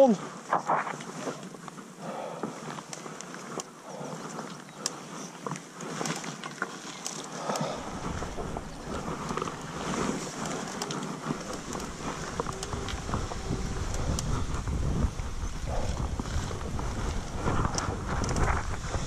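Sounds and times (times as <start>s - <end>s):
wind buffeting microphone: 7.4s - 19.0s.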